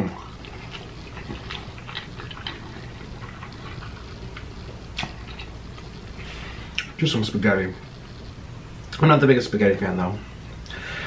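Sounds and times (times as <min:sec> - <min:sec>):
chewing and mouth noises: 0:00.0 - 0:07.0.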